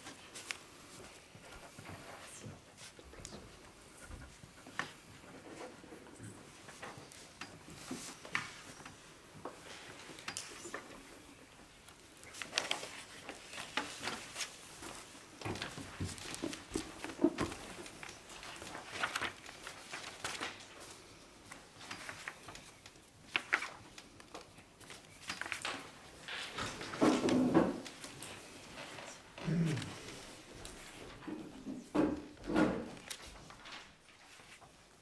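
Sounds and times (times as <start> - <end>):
paper sheets rustling: 0.0 - 3.0, 11.8 - 31.2, 32.4 - 35.0
people shuffling at seats: 0.0 - 32.4, 33.0 - 35.0.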